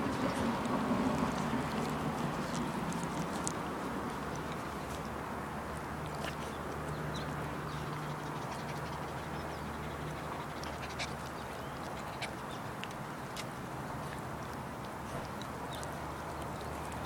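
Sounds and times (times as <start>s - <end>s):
small dog panting: 7.7s - 14.3s.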